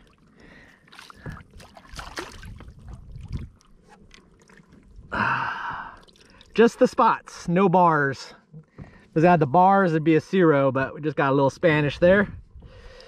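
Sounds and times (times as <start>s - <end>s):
water splashing against kayak: 0.0s - 7.0s.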